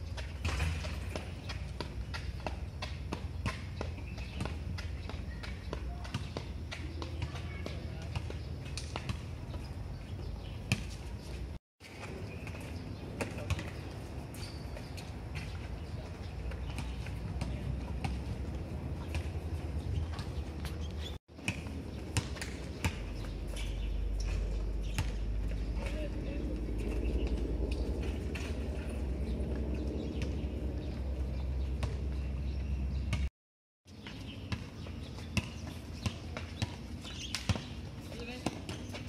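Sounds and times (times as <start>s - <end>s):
steady low rumble: 22.7s - 33.3s.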